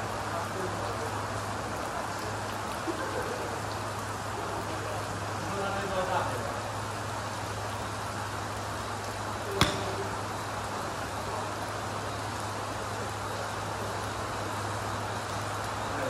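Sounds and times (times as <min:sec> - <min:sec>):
rain hissing: 0:00.0 - 0:16.0
golf club striking ball: 0:09.6 - 0:10.2.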